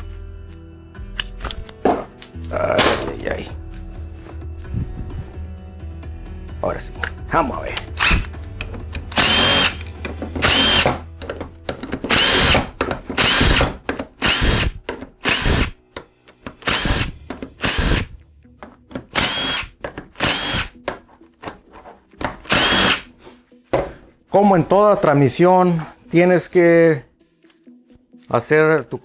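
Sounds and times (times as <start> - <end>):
power driver whining: 8.9 - 11.0, 12.1 - 15.8, 16.6 - 18.2, 19.1 - 20.8, 22.4 - 23.1.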